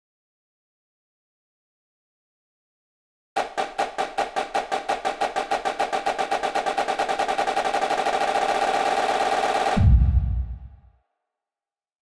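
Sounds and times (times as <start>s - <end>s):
snare drum roll: 3.4s - 10.6s.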